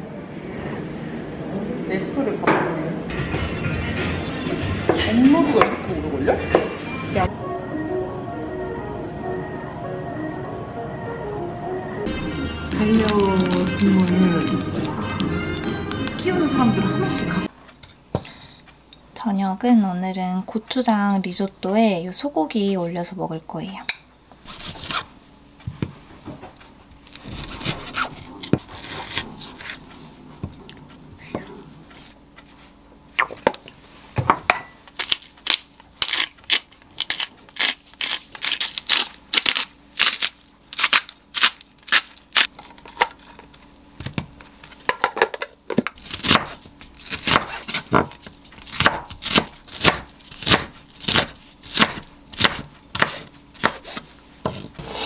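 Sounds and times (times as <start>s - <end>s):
knife chopping onion: 24.5s - 25.1s, 45.8s - 55.0s
knife cutting on wooden board: 48.7s - 55.0s.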